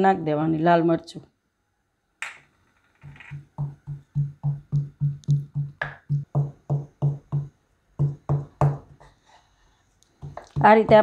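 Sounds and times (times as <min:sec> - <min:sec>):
pestle pounding in wooden mortar: 0:03.4 - 0:09.1, 0:10.2 - 0:11.0.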